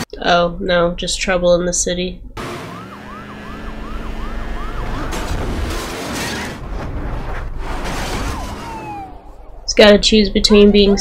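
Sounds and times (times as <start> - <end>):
street and traffic noise: 2.2 - 11.0
emergency siren yelping: 2.4 - 5.6, 7.8 - 11.0.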